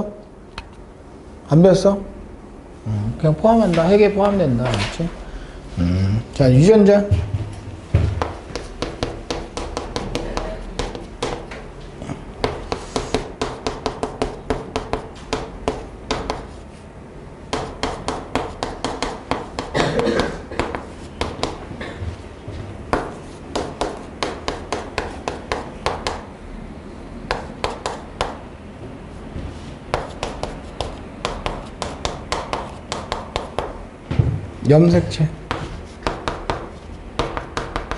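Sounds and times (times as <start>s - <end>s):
chalk tapping and scraping on board: 8.2s - 11.6s, 12.4s - 16.7s, 17.5s - 19.8s, 20.6s - 22.2s, 22.9s - 26.3s, 27.3s - 28.4s, 29.4s - 33.8s, 35.5s - 37.9s.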